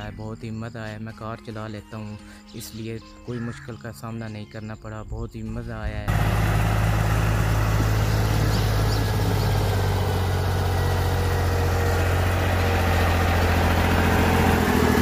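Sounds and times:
diesel tractor engine running: 6.0 - 15.0.

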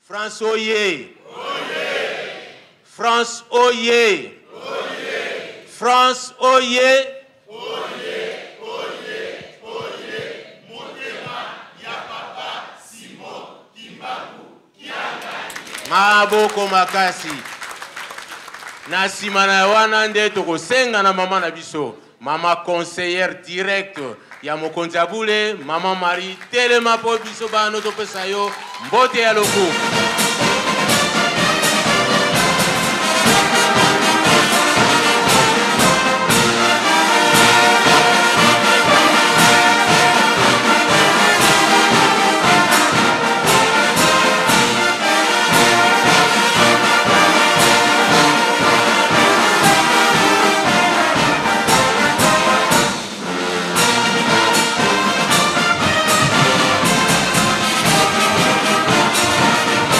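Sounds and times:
brass band playing: 25.6 - 59.9.

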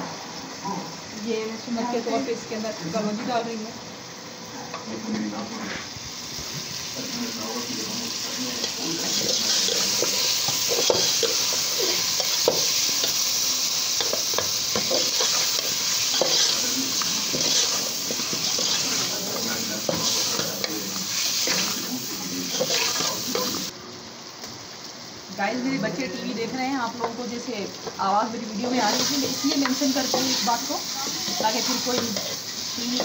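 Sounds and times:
chicken sizzling in hot oil: 0.0 - 33.0.

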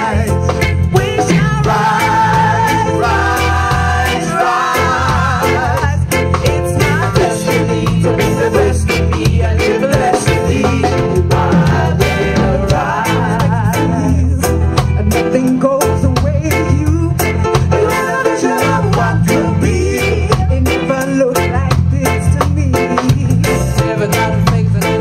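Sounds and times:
vocalists singing together: 0.0 - 15.0, 17.6 - 21.5
live reggae band playing: 0.0 - 25.0.

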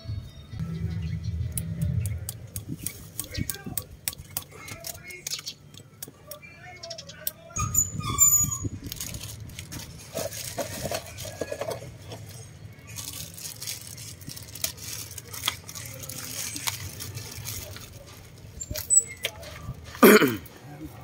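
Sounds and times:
plastic bag crinkling: 8.7 - 18.9.

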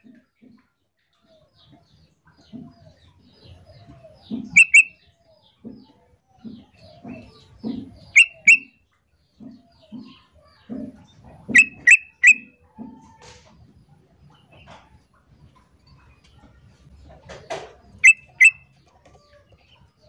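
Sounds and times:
bird calling sharp notes: 4.5 - 5.0, 8.1 - 8.8, 11.5 - 12.6, 18.0 - 18.6.

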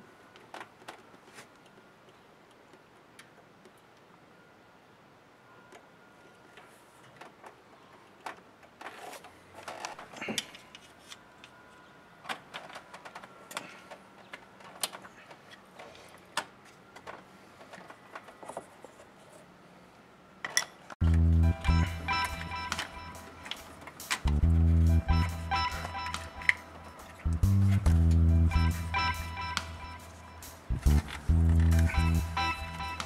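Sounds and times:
hand tools and engine parts clattering: 20.5 - 33.0
loud music: 21.0 - 33.0.

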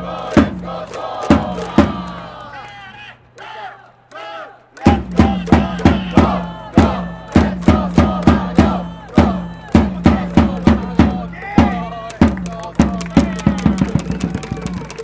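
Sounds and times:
drums beating: 0.0 - 2.8, 4.8 - 15.0
trumpets: 0.0 - 7.9
crowd chanting: 0.0 - 14.8
fans shouting together: 0.0 - 15.0.

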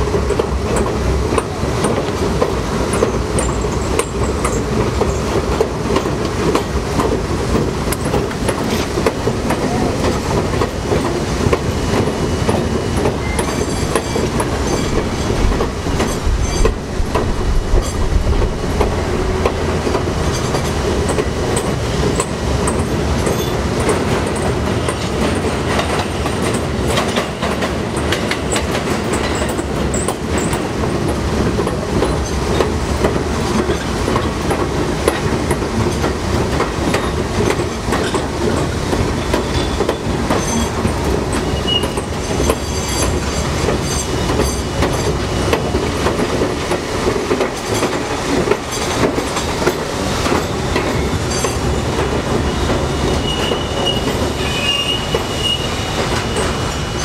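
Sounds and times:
rattling clicks over rails: 0.0 - 54.4
train wheel and track noise: 0.0 - 57.0
high wheel squeals: 39.4 - 43.1, 52.4 - 57.0.

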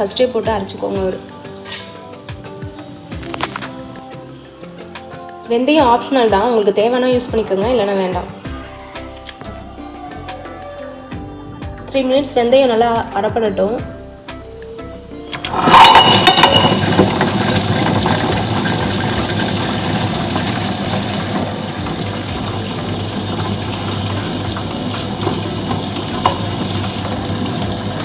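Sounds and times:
rollers clattering: 15.3 - 28.0
stone wet grinder running: 15.4 - 28.0.

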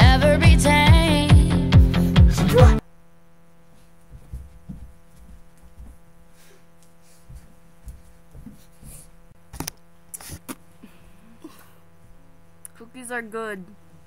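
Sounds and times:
faint electrical hum: 2.8 - 14.0
soft thumps of bodies on floor: 4.1 - 6.0, 7.2 - 9.1.

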